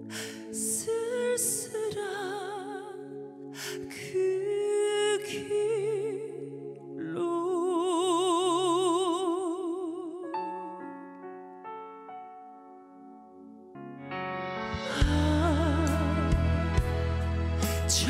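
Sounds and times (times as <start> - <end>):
woman singing: 0.1 - 11.0, 14.8 - 16.7, 17.7 - 18.0
instrumental backing music: 10.3 - 18.0.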